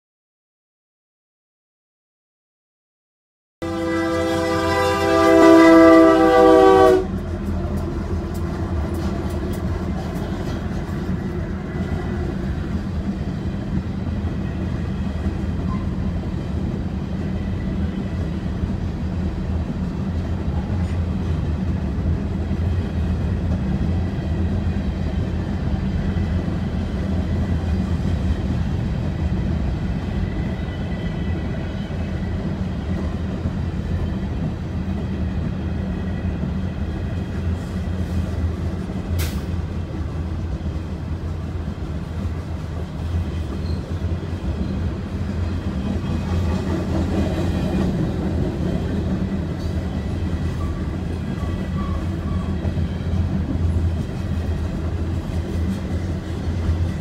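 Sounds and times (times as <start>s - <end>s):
locomotive air horn: 3.6s - 7.2s.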